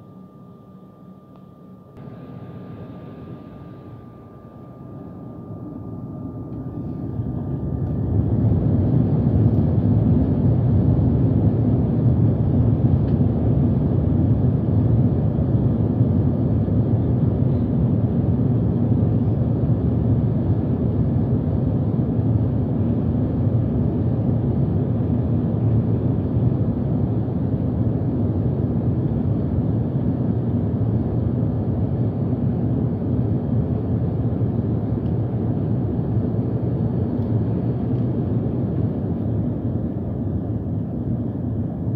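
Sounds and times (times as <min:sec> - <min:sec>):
thin whine: 0:00.0 - 0:11.3
jet engines roaring in cabin: 0:01.9 - 0:41.9.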